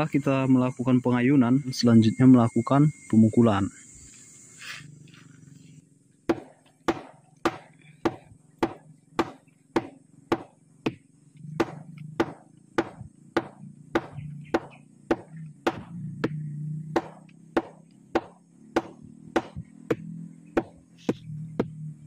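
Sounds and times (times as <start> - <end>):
mallet beating palm stalk: 6.3 - 21.9.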